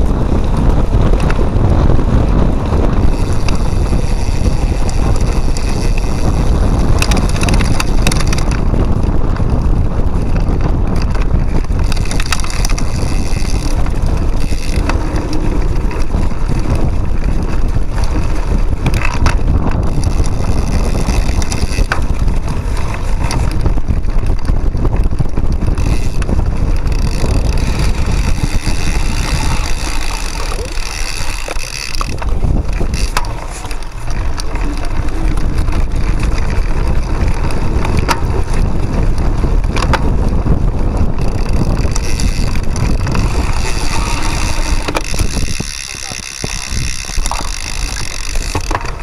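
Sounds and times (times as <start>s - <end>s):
bike rattling: 0.0s - 49.0s
wind buffeting microphone: 0.0s - 49.0s.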